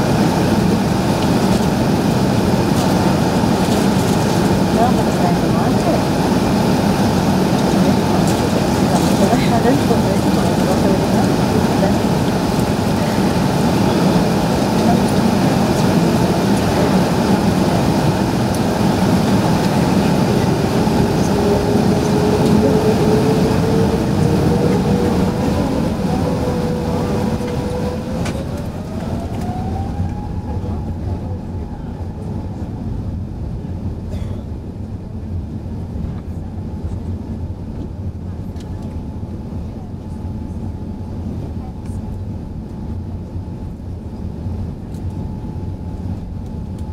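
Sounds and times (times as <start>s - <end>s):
rising engine whine: 0.0s - 34.1s
jet engine rush in cabin: 0.0s - 46.9s.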